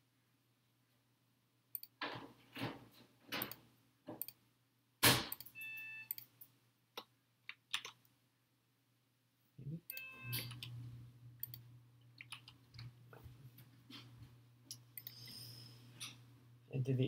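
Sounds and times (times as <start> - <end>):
faint steady hum: 0.0 - 17.0
computer mouse clicks: 11.4 - 11.6, 15.0 - 15.3.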